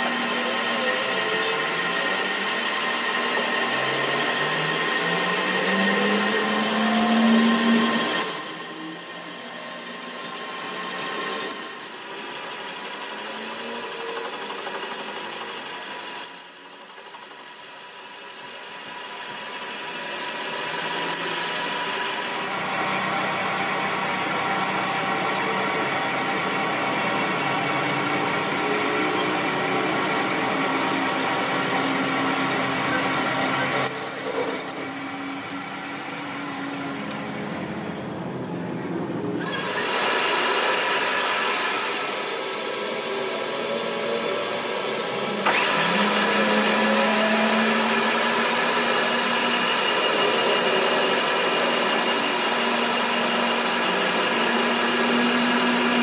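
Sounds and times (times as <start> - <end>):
metal lathe running: 6.4 - 35.0, 45.4 - 56.0
cutting tool squealing on steel: 10.2 - 16.2, 33.6 - 34.9.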